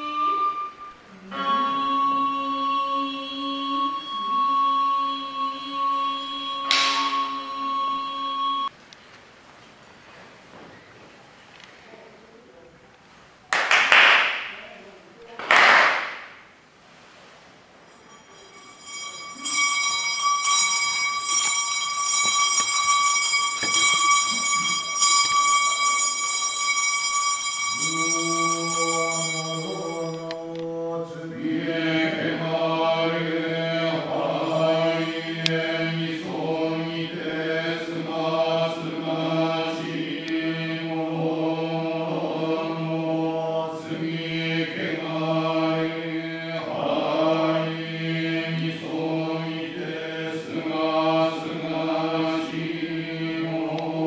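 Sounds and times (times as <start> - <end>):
steady high tone: 0.0 - 8.8, 17.3 - 54.0
man chanting: 27.8 - 54.0.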